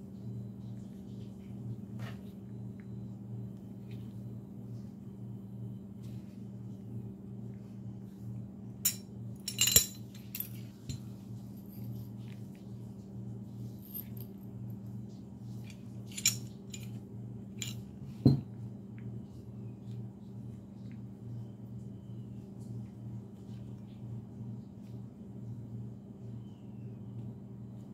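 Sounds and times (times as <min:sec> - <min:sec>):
steady low hum: 0:00.0 - 0:27.9
metal gun parts clicking: 0:08.9 - 0:10.6, 0:16.1 - 0:16.9.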